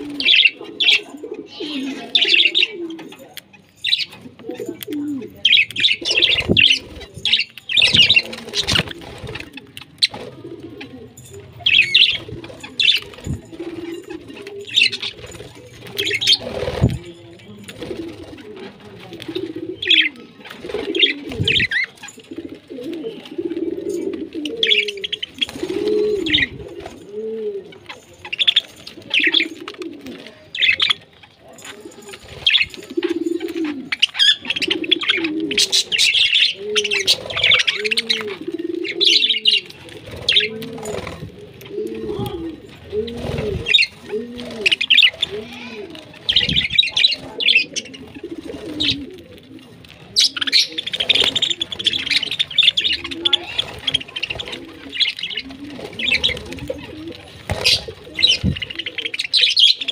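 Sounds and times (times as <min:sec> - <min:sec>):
dove cooing: 0:00.0 - 0:03.4, 0:04.2 - 0:59.9
budgerigars chirping: 0:57.5 - 0:59.9.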